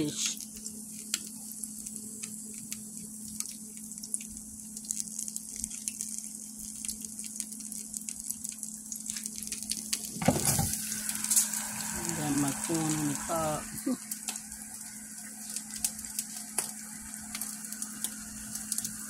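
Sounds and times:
food sizzling in oil: 0.0s - 19.0s
low steady hum: 0.0s - 19.0s.

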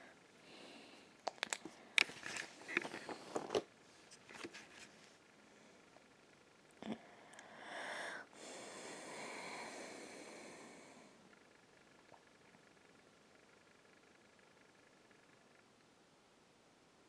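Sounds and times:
paper rustling: 2.0s - 5.1s.

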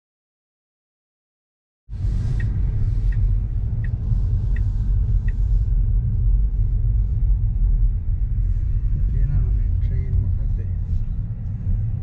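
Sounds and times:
car interior road rumble: 1.9s - 12.0s
light ticks: 2.3s - 5.5s.

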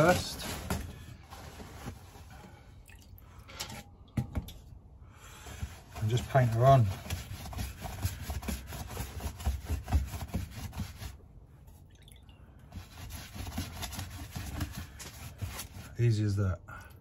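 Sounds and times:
paintbrush scrubbing fabric: 5.8s - 11.2s, 12.7s - 16.0s.

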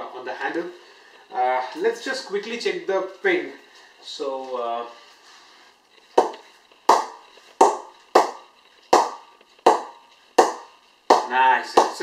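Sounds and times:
ball knocking on a wooden bat: 6.2s - 12.0s.

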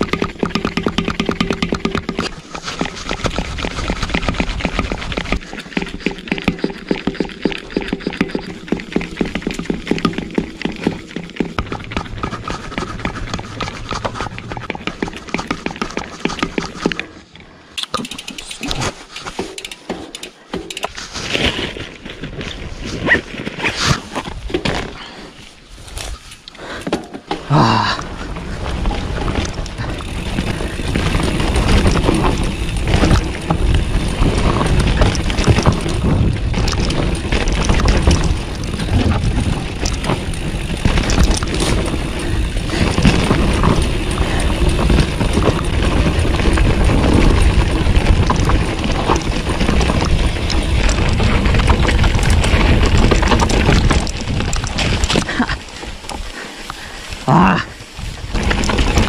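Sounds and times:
bike rattling and knocking: 0.0s - 17.2s, 17.8s - 59.0s
tyres running over dirt: 0.0s - 59.0s
wind rumbling on microphone: 27.9s - 59.0s.

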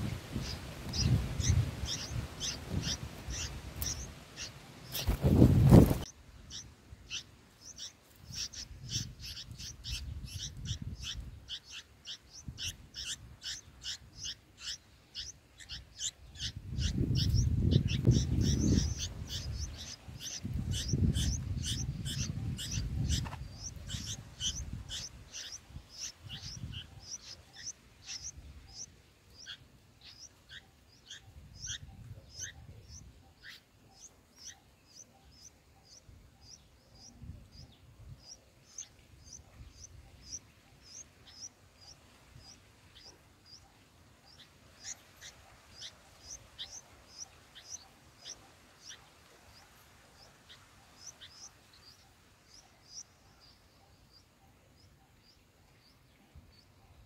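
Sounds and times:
nestlings cheeping: 0.4s - 37.1s.

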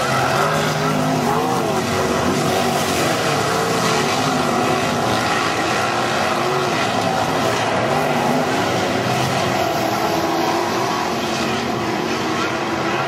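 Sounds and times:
racing car engines: 0.0s - 13.0s.

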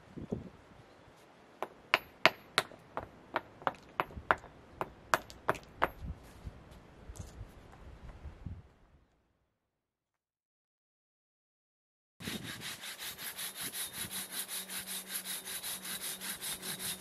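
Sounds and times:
hand tool tapping on stone: 1.6s - 6.0s.

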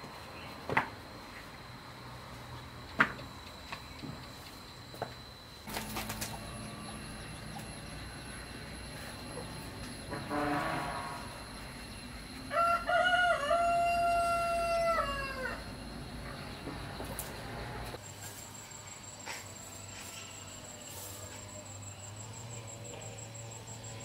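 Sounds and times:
rooster crowing: 12.4s - 15.9s.

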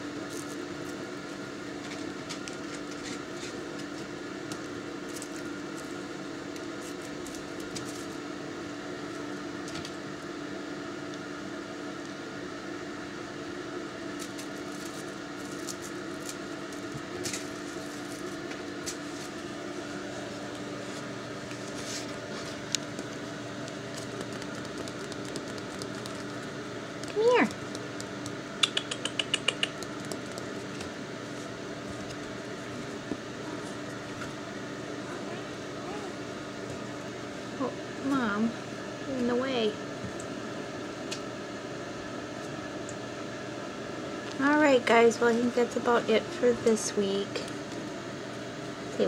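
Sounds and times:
steady mechanical hum: 0.0s - 49.0s
faint clicks and taps: 22.7s - 30.9s.

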